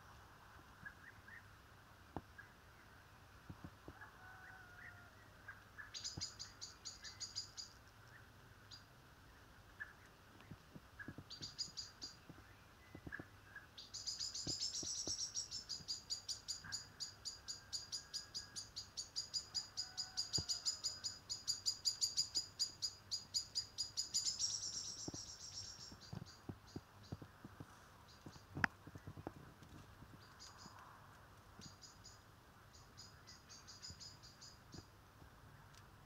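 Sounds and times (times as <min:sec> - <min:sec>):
blackbird alarm notes: 0:11.0 - 0:27.2.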